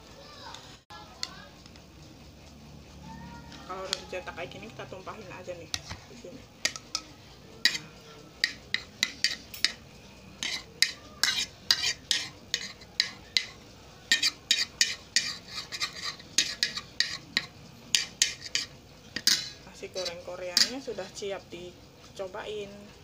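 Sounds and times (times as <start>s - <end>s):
metal spoon clinking on plate: 6.6s - 20.8s.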